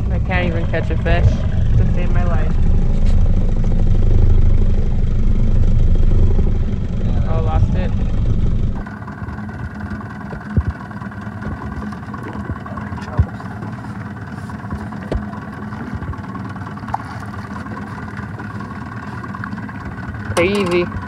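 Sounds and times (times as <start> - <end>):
outboard motor idling: 0.0 - 21.0
dull thumps: 14.7 - 15.3.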